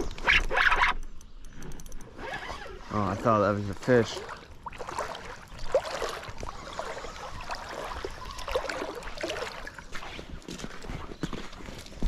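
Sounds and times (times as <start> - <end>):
reel and line clicks: 0.0 - 2.8
light water noise: 1.7 - 12.0.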